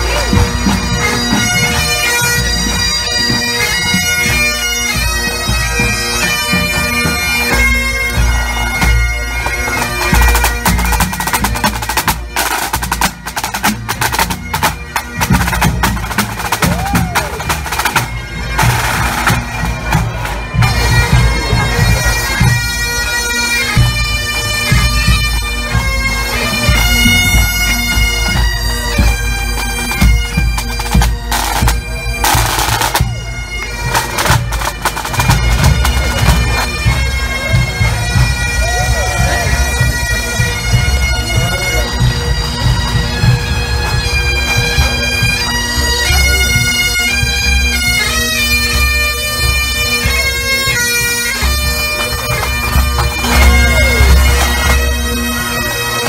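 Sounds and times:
bagpipes playing: 0:00.0 - 0:56.0
bass and snare drums beating: 0:10.1 - 0:22.5.

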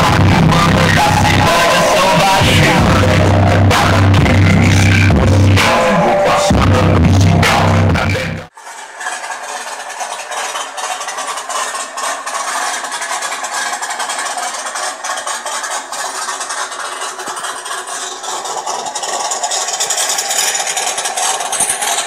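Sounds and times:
distorted sound from small loudspeakers: 0:00.0 - 0:08.5.

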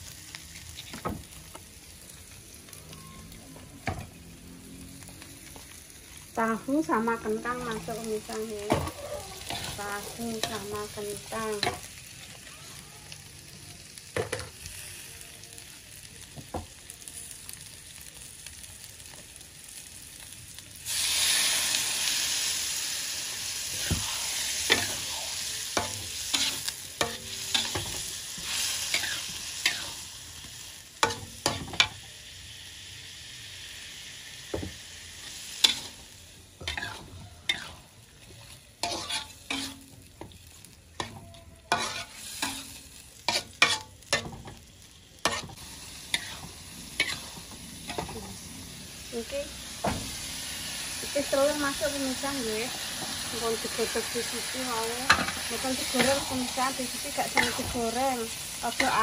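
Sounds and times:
loud sizzle in hot wok: 0:00.0 - 0:59.0
metal spatula scraping a wok: 0:07.8 - 0:11.9, 0:23.7 - 0:30.0, 0:35.2 - 0:40.2, 0:41.0 - 0:44.6, 0:45.2 - 0:48.4, 0:52.8 - 0:59.0.

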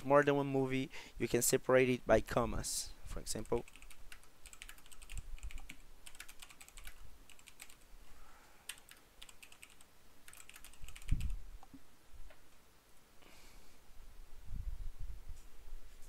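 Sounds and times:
typing on a keyboard: 0:03.4 - 0:07.8, 0:08.7 - 0:11.4.

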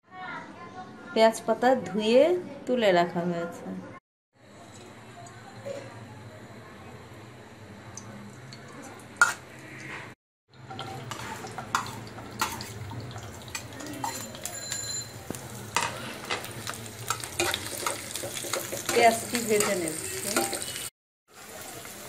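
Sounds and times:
onion sizzling in pan: 0:04.4 - 0:22.0
spatula scraping pan: 0:09.2 - 0:20.8.

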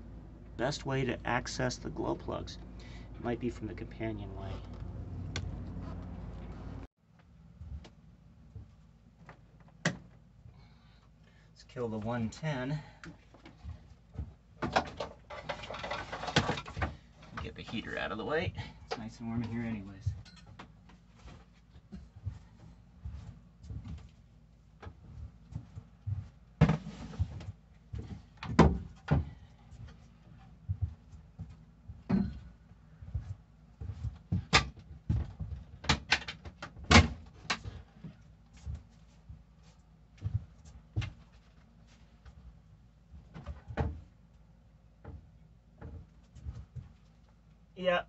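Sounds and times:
wooden knocks and clatter: 0:13.1 - 0:17.9, 0:24.8 - 0:29.4, 0:32.0 - 0:32.5, 0:33.9 - 0:38.2, 0:45.0 - 0:47.1.

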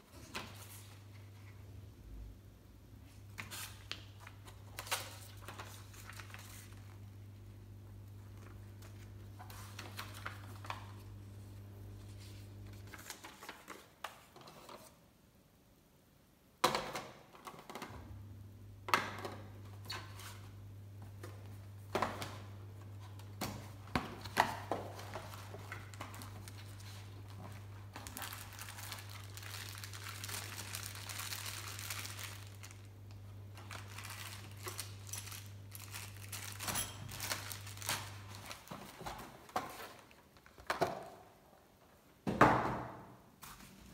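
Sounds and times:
cardboard and paper rustling: 0:00.0 - 0:01.6, 0:03.1 - 0:07.2, 0:08.1 - 0:15.0, 0:19.9 - 0:32.9, 0:33.5 - 0:40.9
plastic and paper crinkling: 0:03.1 - 0:15.0, 0:23.0 - 0:40.6.

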